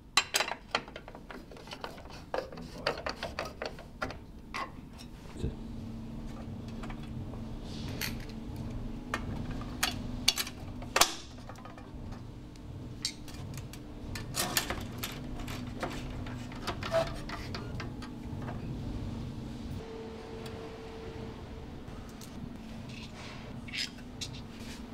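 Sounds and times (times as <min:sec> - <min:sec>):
clicks and knocks of gutter parts: 0:00.2 - 0:04.8
steady low hum: 0:01.0 - 0:24.9.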